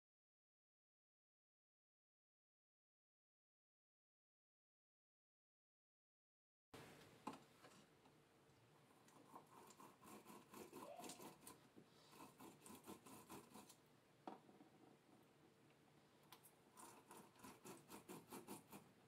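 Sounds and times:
lemon squelching on a squeezer: 0:09.1 - 0:11.6.

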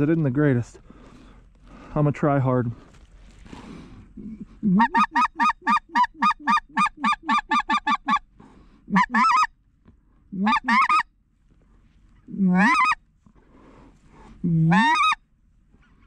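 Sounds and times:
goose call clucking: 0:04.2 - 0:08.3, 0:08.9 - 0:09.5, 0:10.3 - 0:11.1, 0:12.3 - 0:13.0, 0:14.5 - 0:15.2
goose call yelps: 0:04.6 - 0:08.2, 0:08.9 - 0:09.5, 0:10.4 - 0:11.1, 0:12.3 - 0:13.0, 0:14.6 - 0:15.2.

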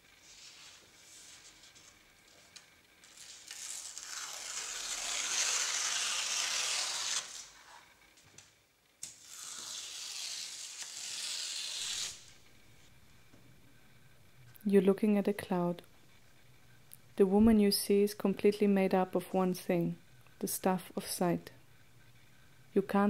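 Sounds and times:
paper tearing: 0:03.0 - 0:07.8, 0:09.0 - 0:12.4.

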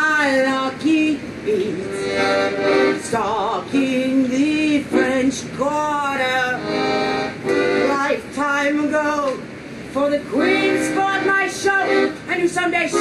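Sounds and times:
piano accordion accompaniment: 0:01.9 - 0:03.6, 0:04.8 - 0:05.5, 0:06.4 - 0:08.2, 0:10.4 - 0:13.0
person singing long sliding notes: 0:10.3 - 0:12.1.

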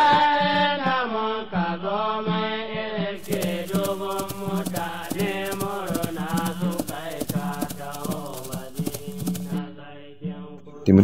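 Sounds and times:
clicking percussion beat: 0:03.2 - 0:09.6
person chanting: 0:03.2 - 0:09.7.

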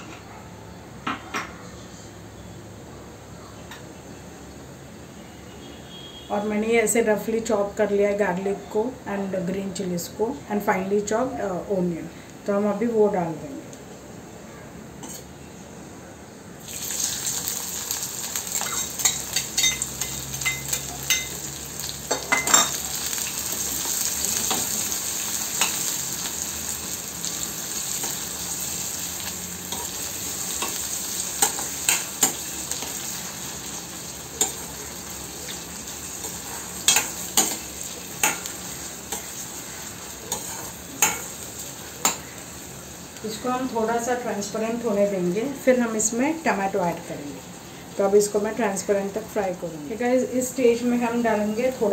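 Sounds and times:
food sizzling in hot oil: 0:16.6 - 0:51.9.

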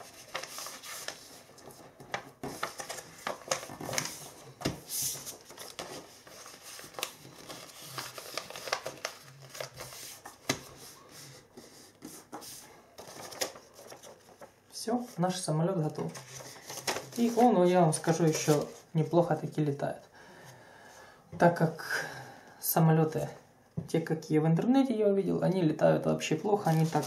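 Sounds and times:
paper folding clicks and swishes: 0:00.0 - 0:11.2, 0:12.1 - 0:14.5, 0:16.1 - 0:18.8
paper rustling and crinkling: 0:00.0 - 0:19.5, 0:26.5 - 0:27.0.

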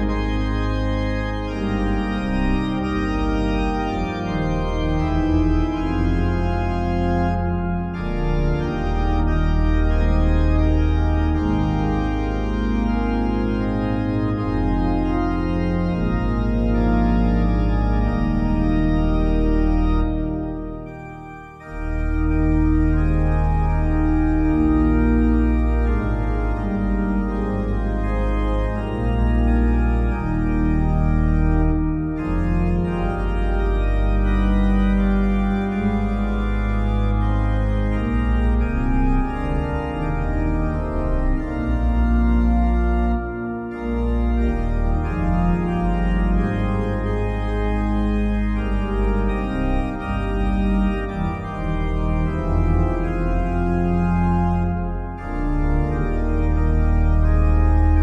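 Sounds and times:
organ chords over deep bass: 0:00.0 - 0:58.0.

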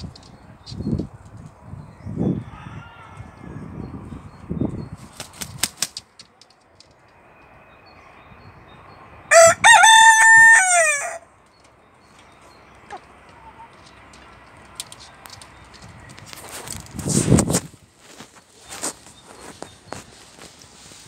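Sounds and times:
rooster crowing: 0:02.2 - 0:03.9, 0:09.3 - 0:11.3
sharp clicks: 0:05.2 - 0:07.2.

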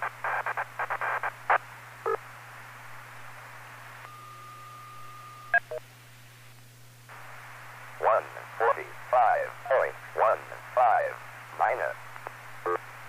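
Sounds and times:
radio hiss: 0:00.0 - 0:04.0, 0:07.1 - 0:13.0.

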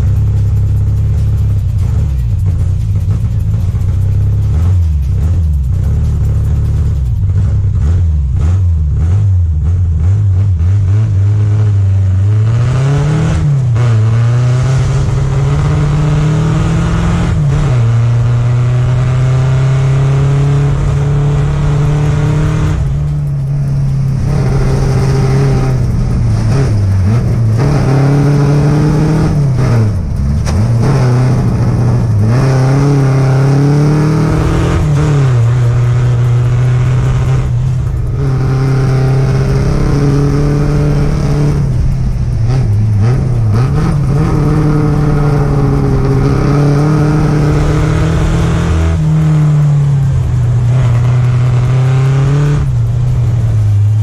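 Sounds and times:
car engine revving: 0:00.0 - 0:54.0.

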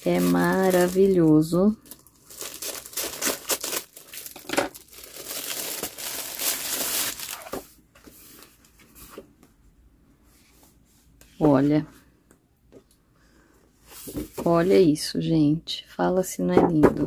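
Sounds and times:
plastic wrapper crinkling: 0:00.0 - 0:07.8.

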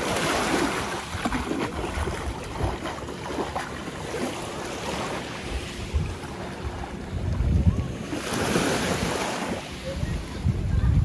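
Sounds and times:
water splashing from wading: 0:00.0 - 0:10.4
small waves lapping: 0:00.0 - 0:10.9
wind buffeting microphone: 0:05.4 - 0:11.0.

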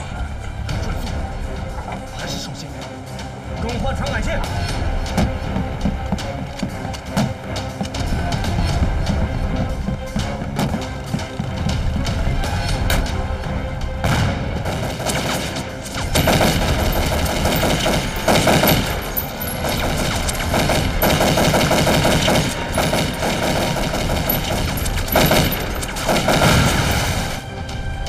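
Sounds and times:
automatic rifle fire: 0:16.2 - 0:19.0, 0:19.6 - 0:27.2.

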